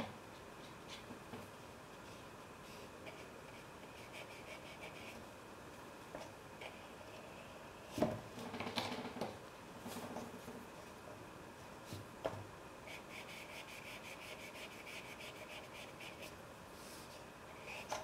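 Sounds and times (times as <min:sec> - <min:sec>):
paintbrush scrubbing on paper: 0:12.9 - 0:16.3.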